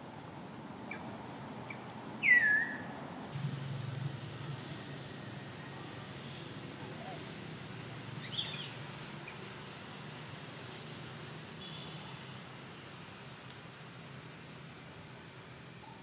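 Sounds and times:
steady low hum: 2.8s - 15.3s.

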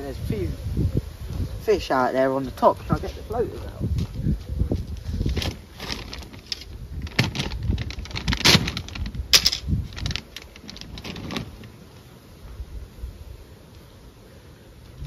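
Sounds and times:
plastic bag crinkling: 5.3s - 11.8s.

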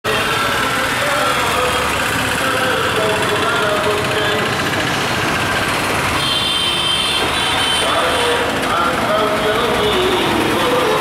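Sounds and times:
road traffic: 0.0s - 11.0s
voices: 0.1s - 5.0s, 7.8s - 11.0s
bus engine running: 0.1s - 11.0s.

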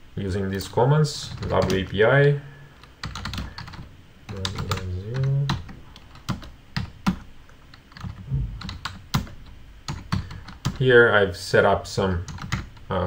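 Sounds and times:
keyboard keys clicking: 3.0s - 10.8s, 12.3s - 12.8s.

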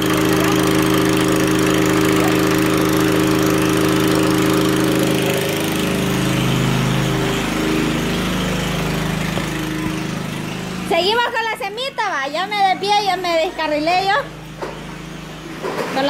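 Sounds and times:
low wavering tone: 0.0s - 11.0s
truck engine drone: 0.0s - 16.0s.

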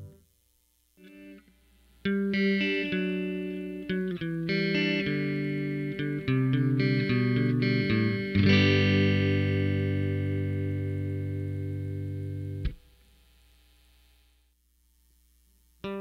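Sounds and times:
faint hum: 0.0s - 16.0s
electric guitar chord ringing: 1.0s - 12.8s.

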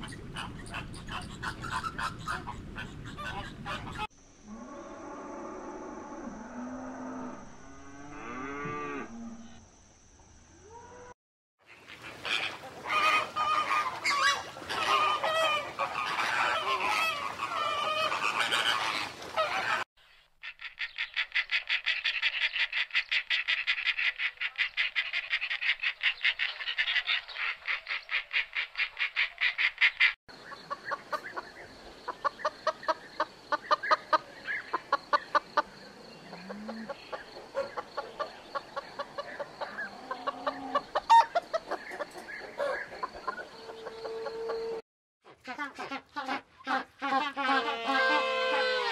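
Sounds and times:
flamingos honking: 11.7s - 19.8s, 45.4s - 48.9s
slower repeated bird calls: 20.0s - 44.8s.

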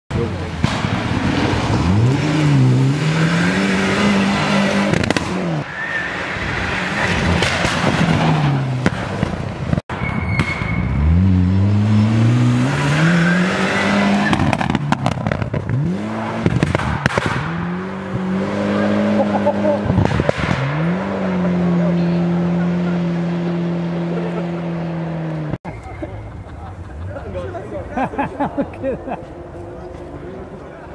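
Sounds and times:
rally car engine revving: 0.1s - 9.7s, 10.7s - 25.6s
exhaust crackles: 10.9s - 26.0s.

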